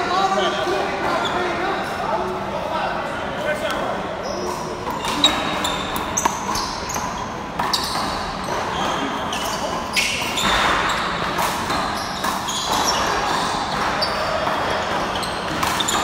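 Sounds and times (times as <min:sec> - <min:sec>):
sneakers squeaking on court: 0:04.2 - 0:16.0.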